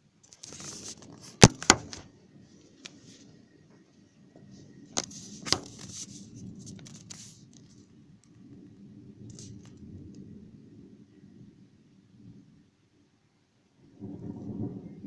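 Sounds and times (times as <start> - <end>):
low storm rumble: 3.3 - 15.0
phone handling scrapes and clicks: 5.0 - 7.4.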